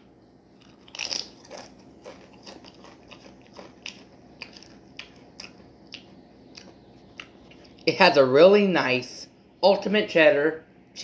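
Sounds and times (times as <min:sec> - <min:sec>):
person chewing chips: 0:00.5 - 0:07.9.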